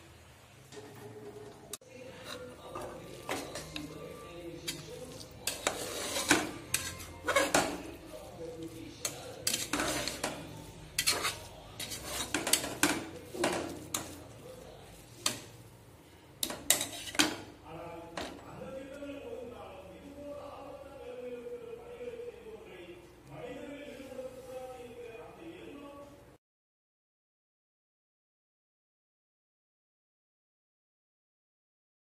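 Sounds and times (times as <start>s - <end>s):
spoon scraping metal pot: 1.4s - 14.4s, 16.4s - 17.5s.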